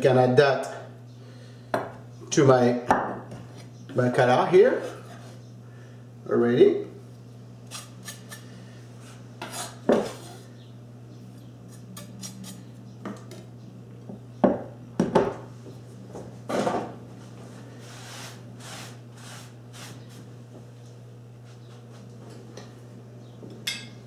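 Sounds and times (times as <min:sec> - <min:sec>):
knife scraping glass bowl: 0:07.7 - 0:08.4, 0:09.4 - 0:10.5, 0:11.7 - 0:12.6
hand brushing wooden board: 0:17.8 - 0:20.3.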